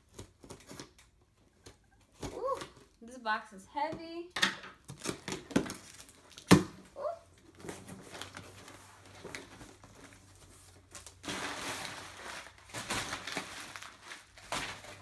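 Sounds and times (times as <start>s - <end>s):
packing paper crumpling: 7.5s - 15.0s.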